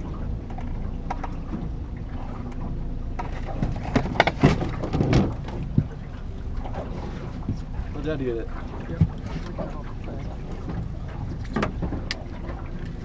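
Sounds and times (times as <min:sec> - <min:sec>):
knocks and clatter on boat: 0:00.0 - 0:13.0
low rumble of wind and boat: 0:00.0 - 0:13.0.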